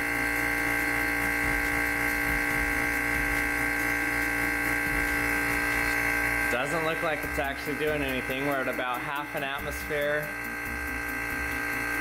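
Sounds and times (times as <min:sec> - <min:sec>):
vacuum pump humming with whine: 0:00.0 - 0:12.0.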